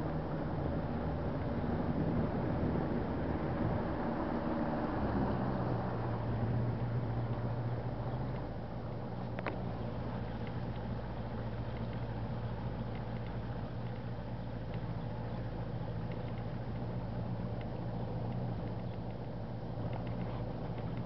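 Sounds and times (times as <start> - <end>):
boat motor humming: 6.2 - 21.0.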